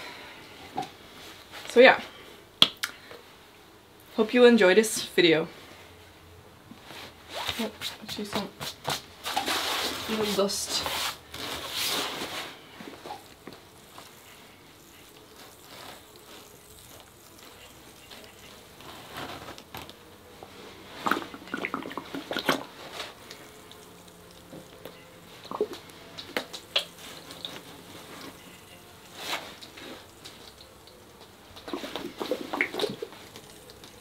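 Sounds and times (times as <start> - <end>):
wet paint squirts: 21.0 - 24.8, 29.1 - 34.0
bottle handling noises: 21.0 - 34.0.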